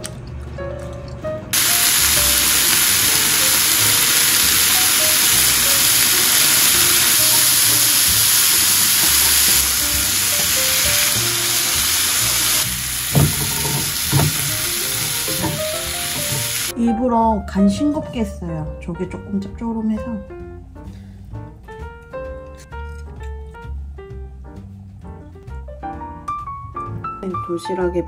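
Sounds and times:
vegetables sizzling in frying pan: 1.6 - 16.7
chopsticks knocking pan: 13.0 - 16.5.

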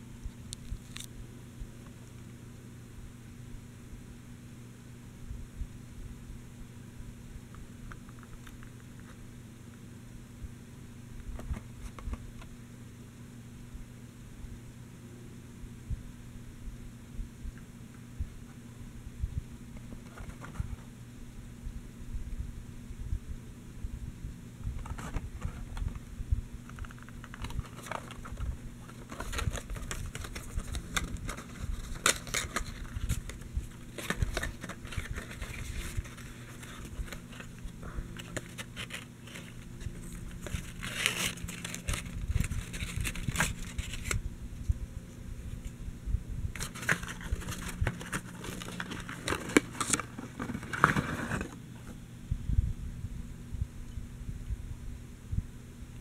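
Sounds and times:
faint low hum: 0.0 - 56.0
cardboard box rustling: 19.8 - 20.9, 24.8 - 26.0, 26.6 - 44.2, 46.6 - 52.0.

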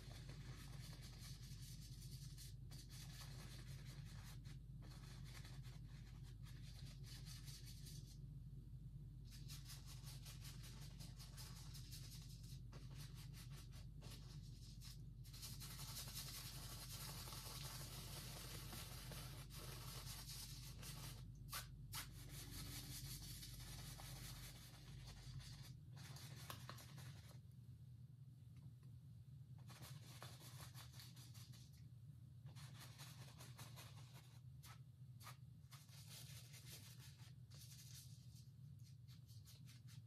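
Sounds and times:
steady low hum: 0.0 - 40.0
brush scrubbing on canvas: 9.3 - 27.4.

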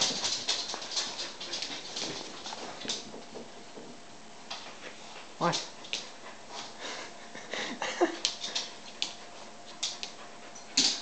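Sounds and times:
dog scuffing and breathing: 0.0 - 3.0.

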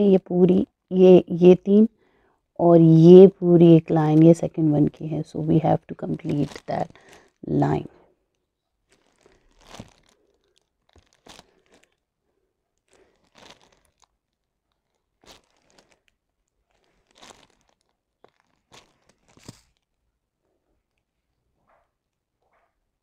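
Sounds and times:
plastic film crinkling: 5.7 - 12.1, 12.7 - 20.0.

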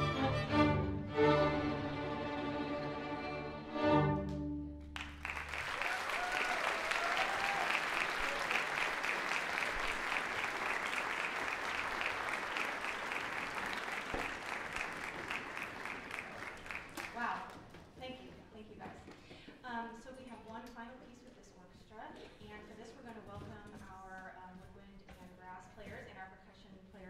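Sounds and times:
orchestra chord: 0.0 - 5.0
audience applause: 4.9 - 17.4.

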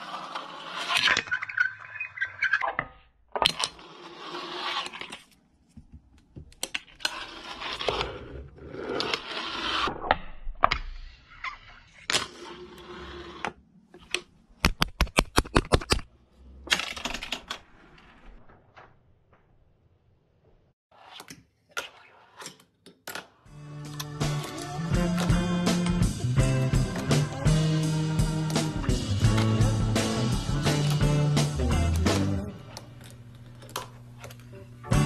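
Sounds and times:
fingerboard wheels rolling: 0.0 - 2.6, 3.4 - 5.4, 6.5 - 10.1, 11.8 - 14.3.

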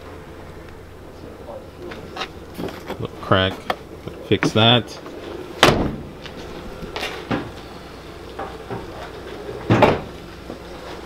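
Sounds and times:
truck door thudding shut: 5.6 - 6.2, 9.7 - 10.1.

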